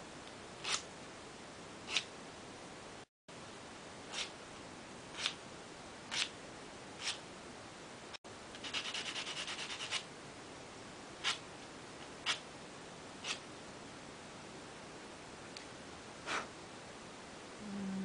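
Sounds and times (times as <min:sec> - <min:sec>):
nail file rasping: 0:00.6 - 0:00.8, 0:08.6 - 0:10.0.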